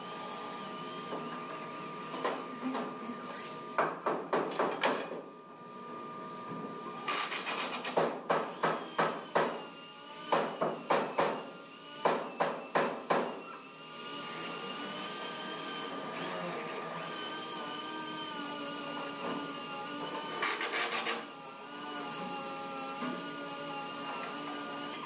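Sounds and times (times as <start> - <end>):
hammering on wood: 3.8 - 5.1, 7.9 - 9.6, 10.3 - 11.4, 12.0 - 13.3
small motor whining: 13.4 - 25.0.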